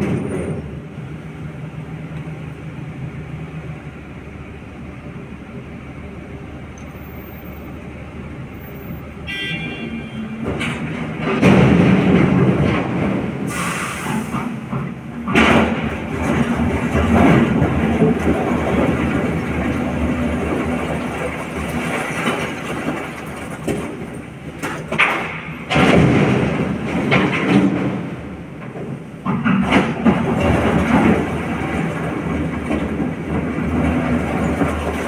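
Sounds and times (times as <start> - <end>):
excavator diesel engine under load: 0.0 - 35.0
rock crashing into truck bed: 24.9 - 28.0.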